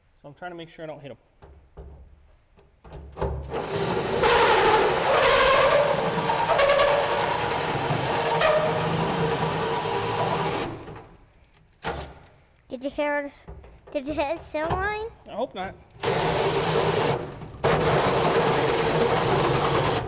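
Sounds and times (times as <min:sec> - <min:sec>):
cordless drill grinding metal: 0:03.5 - 0:10.9, 0:16.0 - 0:20.0.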